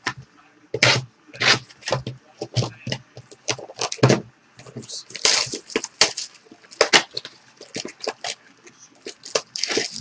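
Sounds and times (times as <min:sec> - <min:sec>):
foil wrapper crinkling and tearing: 0:05.0 - 0:08.4, 0:09.0 - 0:10.0.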